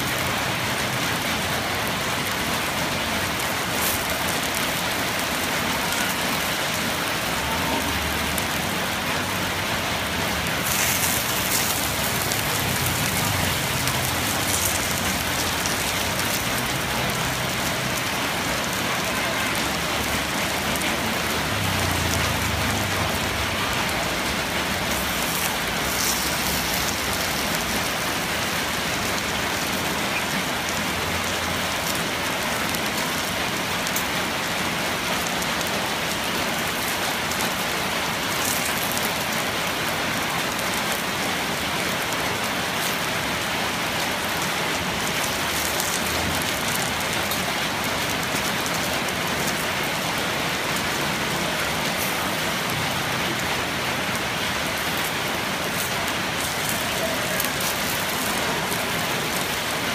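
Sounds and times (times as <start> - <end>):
batter sizzling in a pan: 3.2 - 8.6, 10.4 - 30.3, 36.6 - 39.6, 44.0 - 49.7, 54.2 - 59.9
faint crackles: 10.4 - 30.4, 35.2 - 39.5, 41.8 - 59.9.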